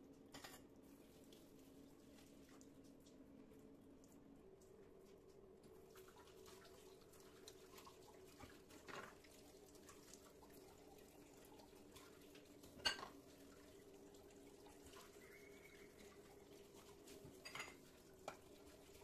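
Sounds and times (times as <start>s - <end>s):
cups rinsed at a sink: 0.0s - 19.0s
faint steady hum: 0.0s - 19.0s
cup clinking set down: 0.3s - 0.6s
tap water running: 0.8s - 19.0s.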